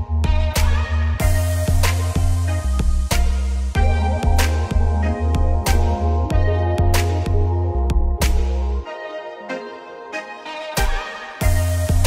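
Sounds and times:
music with heavy bass: 0.0s - 9.2s, 10.5s - 12.0s
steady drum beat: 0.2s - 7.5s.

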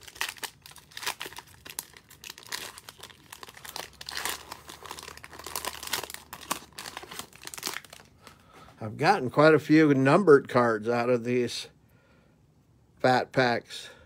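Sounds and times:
plastic wrapper crinkling and tearing: 0.0s - 8.4s.

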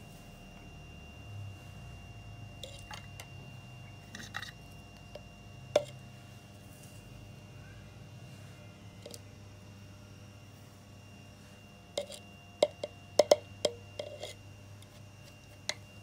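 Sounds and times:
spoon scooping soil: 2.6s - 3.2s, 11.9s - 15.8s
spoon tapping glass jar: 12.0s - 14.2s.

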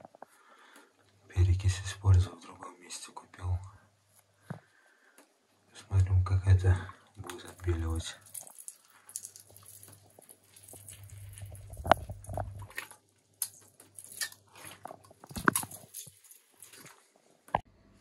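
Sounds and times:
plastic squeeze bottle crackling: 7.2s - 17.1s.

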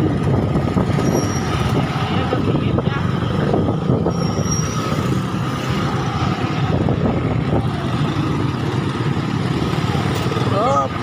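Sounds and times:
vehicle engine and road noise: 0.0s - 11.0s.

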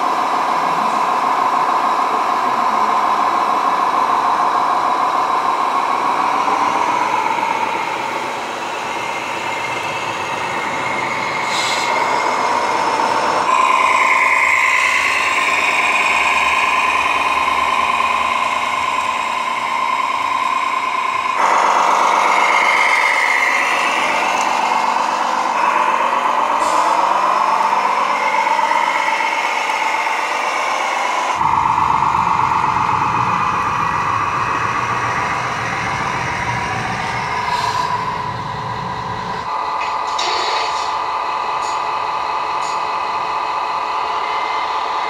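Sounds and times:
toy truck motor running: 0.0s - 32.0s, 39.5s - 45.0s
wavering whine: 0.0s - 45.0s.

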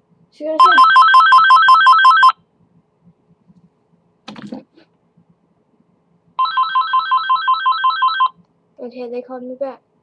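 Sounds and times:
cordless phone ringing: 0.6s - 2.4s, 6.4s - 8.4s.

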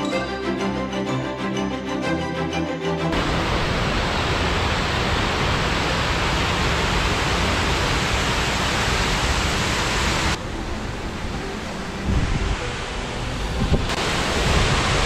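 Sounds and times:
water rushing over dam spillway: 3.1s - 15.0s.

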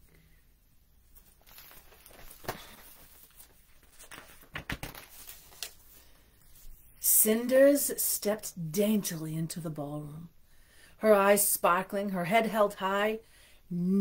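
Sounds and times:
book handling knocks and rustles: 1.4s - 5.2s.

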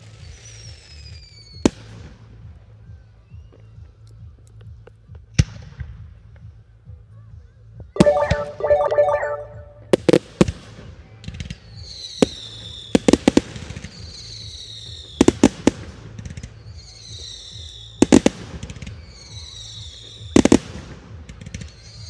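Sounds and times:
falling fireworks whistles: 0.0s - 1.9s, 11.8s - 15.5s, 16.2s - 20.6s, 21.2s - 22.0s.

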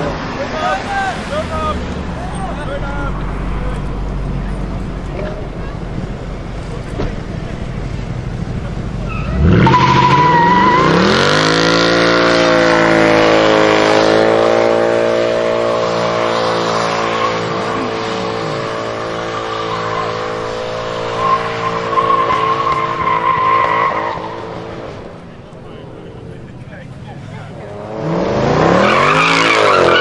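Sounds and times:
car engine revving: 0.0s - 30.0s
tyres squealing: 8.9s - 11.4s, 16.7s - 27.8s, 28.6s - 30.0s.

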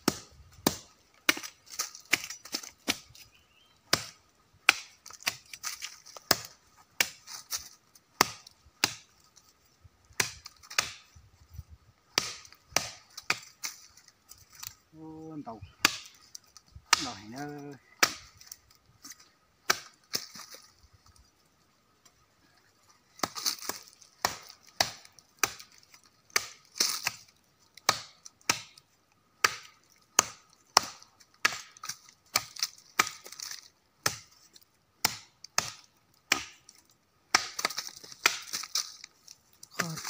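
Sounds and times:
machete chopping wood: 0.0s - 3.2s, 3.9s - 9.1s, 10.1s - 11.1s, 12.1s - 13.9s, 15.8s - 16.2s, 16.8s - 18.6s, 19.6s - 20.7s, 23.2s - 28.8s, 29.4s - 34.4s, 35.0s - 36.7s, 37.3s - 40.0s.

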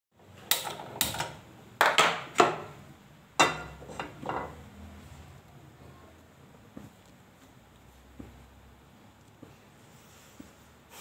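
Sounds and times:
frying pan clanking on metal grate: 3.4s - 4.6s.

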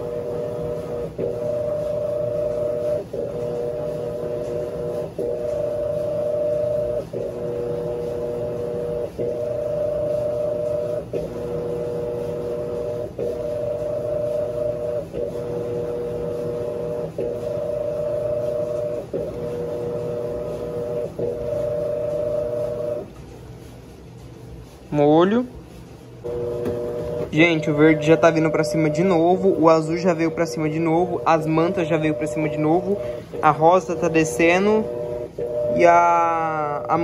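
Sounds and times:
washing machine motor hum: 0.0s - 37.0s.

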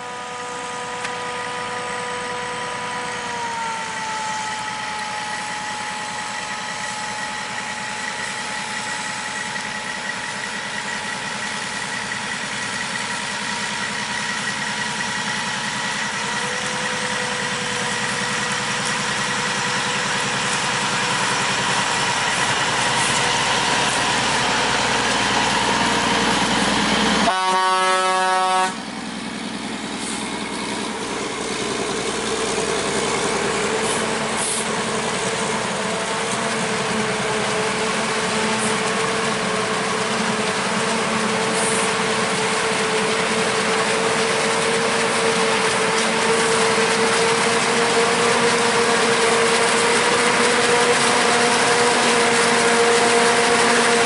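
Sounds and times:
farm machinery whining: 0.0s - 54.0s
horn blast: 27.2s - 28.8s.

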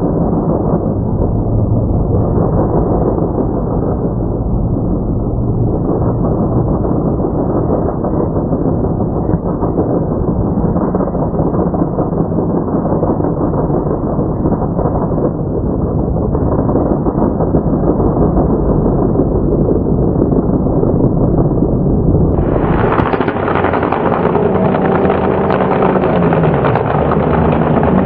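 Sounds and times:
truck engine revving hard: 22.4s - 28.0s.

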